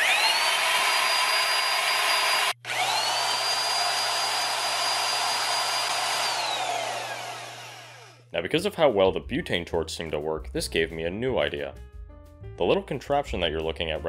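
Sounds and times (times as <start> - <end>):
electric drill whining: 0.0 - 8.3.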